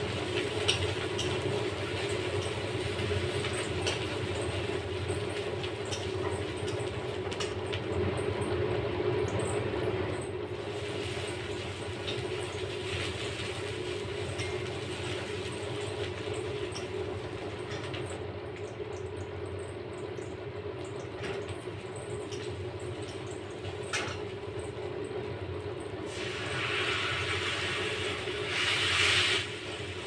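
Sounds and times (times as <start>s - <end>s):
onions sizzling in oil: 10.6s - 17.5s, 26.0s - 30.0s.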